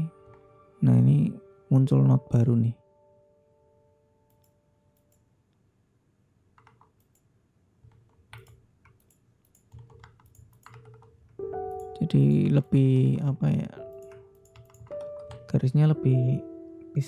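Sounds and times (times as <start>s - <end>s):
mouse and keyboard clicks: 7.9s - 11.2s.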